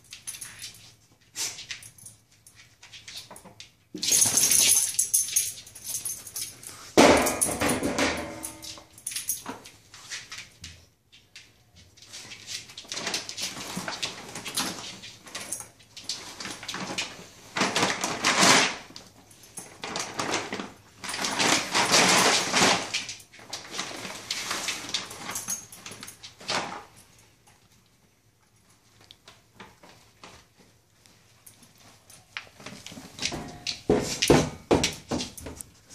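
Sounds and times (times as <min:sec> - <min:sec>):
plastic bag crinkling: 0:12.8 - 0:26.8.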